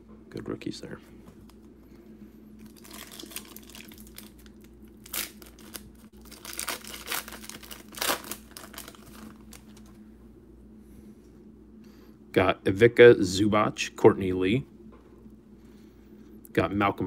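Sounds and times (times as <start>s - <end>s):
card pack wrapper tearing: 2.8s - 9.8s.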